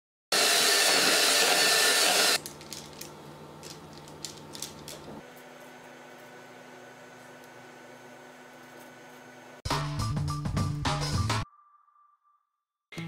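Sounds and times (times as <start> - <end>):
electric hand mixer running: 0.3 - 2.4.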